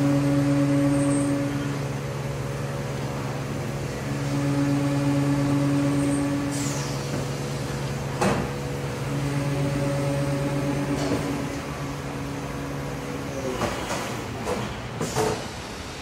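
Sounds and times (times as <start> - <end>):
milling machine hum: 0.0 - 16.0
coolant spraying hiss: 5.5 - 8.2.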